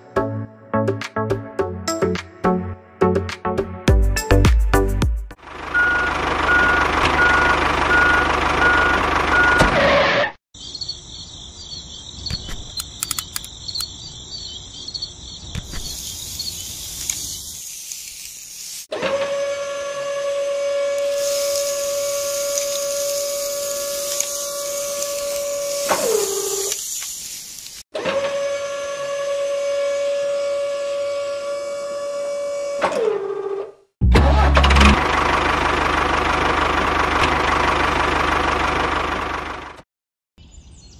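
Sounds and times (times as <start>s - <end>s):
truck engine running: 5.4s - 9.6s, 34.0s - 39.8s
reversing beeper: 5.7s - 9.8s
clicks: 12.3s - 13.9s
mechanical whine: 19.2s - 26.8s.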